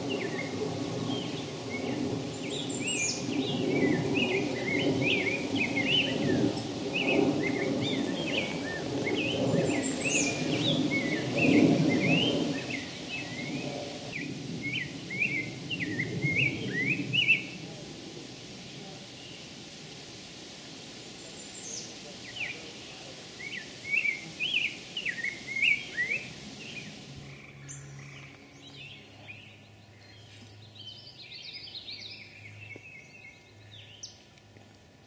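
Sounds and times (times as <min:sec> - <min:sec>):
bird singing whistled phrases: 0:23.4 - 0:26.9
low background rumble: 0:24.5 - 0:35.0.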